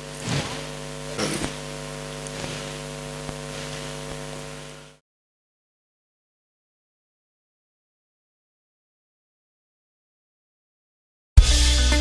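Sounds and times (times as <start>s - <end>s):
electrical mains hum: 0.0s - 5.0s.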